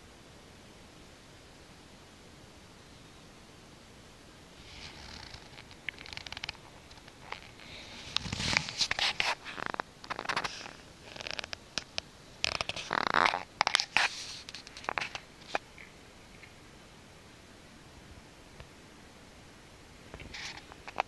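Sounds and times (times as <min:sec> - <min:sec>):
fabric rustling: 0:04.6 - 0:11.5.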